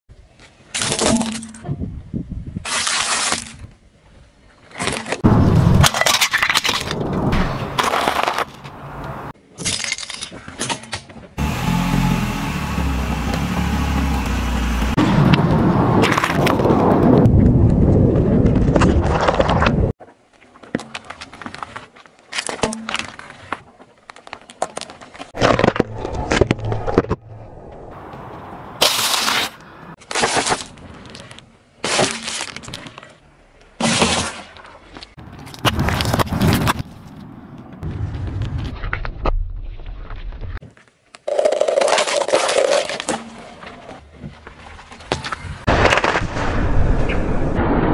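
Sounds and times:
objects cracking under tyre: 4.7s - 11.1s, 12.8s - 17.8s, 20.6s - 39.4s, 40.0s - 46.4s
car rumbling: 11.4s - 16.0s.

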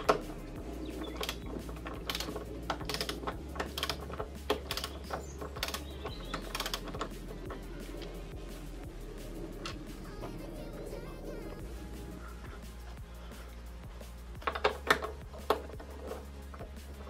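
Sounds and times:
ratcheting wrench clicking: 0.0s - 8.2s, 14.3s - 17.0s.

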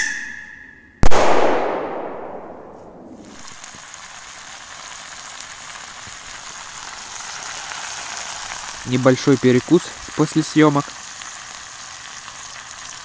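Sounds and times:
firework bang with echo: 1.0s - 3.6s
food sizzling: 3.1s - 13.0s.

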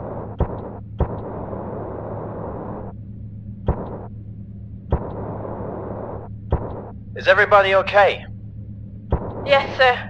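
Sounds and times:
low hum with hiss: 0.0s - 10.0s.

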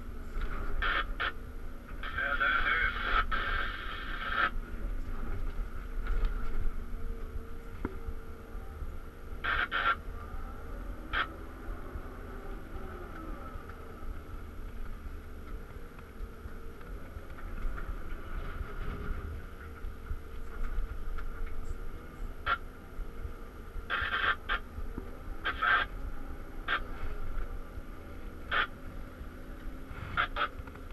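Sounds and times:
excavator engine rumble: 0.0s - 30.9s.

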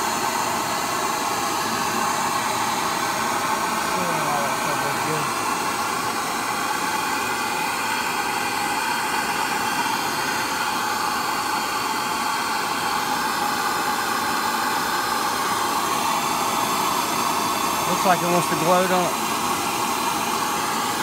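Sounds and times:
gas torch hissing: 0.0s - 21.0s.

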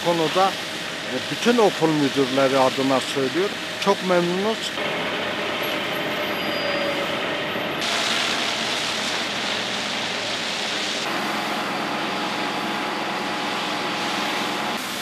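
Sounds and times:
pressure hose spraying water: 0.0s - 4.6s, 7.8s - 15.0s.

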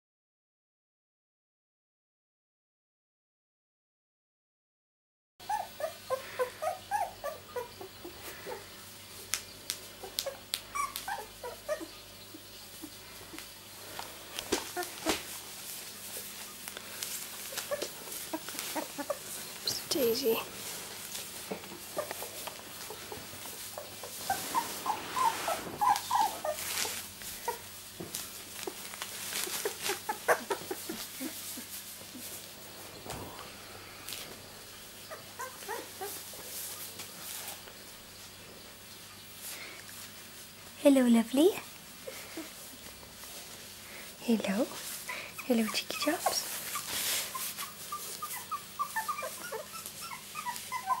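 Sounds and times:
puppies whimpering and squeaking: 5.4s - 9.2s, 9.9s - 37.7s, 44.5s - 51.0s
plastic sheet crinkling: 13.8s - 33.5s.

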